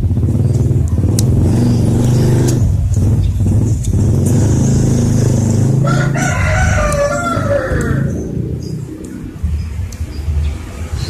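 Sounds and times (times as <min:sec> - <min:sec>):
small engine humming: 0:00.0 - 0:08.9
rooster crowing: 0:05.7 - 0:08.3.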